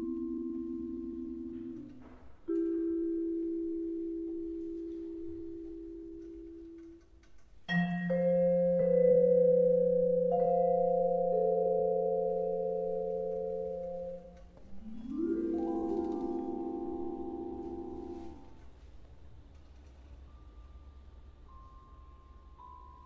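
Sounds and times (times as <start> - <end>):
vibraphone chords ringing: 0.0 - 7.0, 7.7 - 18.6, 20.3 - 23.0.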